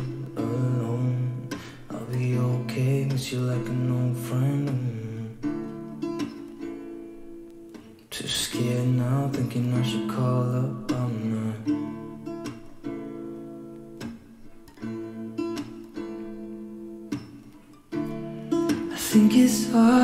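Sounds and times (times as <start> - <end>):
person singing: 0.0 - 5.7, 8.1 - 12.0, 18.8 - 20.0
strummed acoustic guitar: 0.0 - 20.0.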